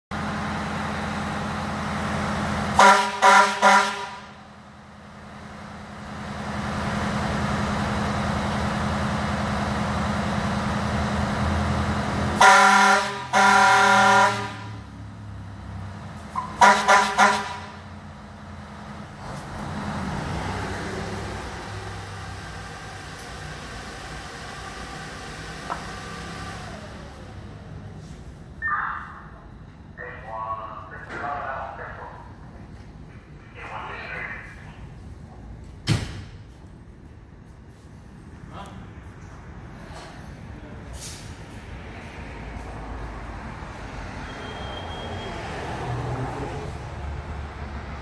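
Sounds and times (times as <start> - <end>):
air horn blasts: 2.7 - 4.4, 12.4 - 14.8, 16.4 - 17.8.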